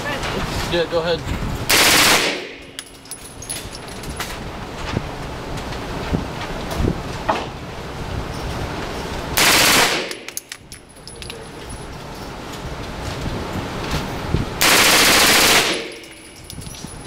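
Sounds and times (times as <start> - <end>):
machine gun bursts: 1.7 - 2.5, 9.4 - 10.3, 14.6 - 16.2.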